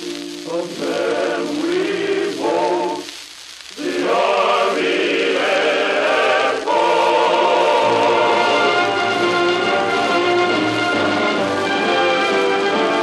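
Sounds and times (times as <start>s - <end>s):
record surface hiss: 0.0s - 13.0s
chorus and orchestra: 3.8s - 13.0s.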